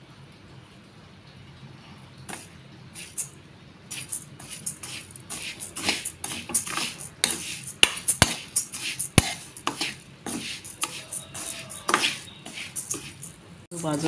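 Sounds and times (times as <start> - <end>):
rice grains rasping in pan: 3.9 - 14.0
spoon scraping a pan: 3.9 - 14.0.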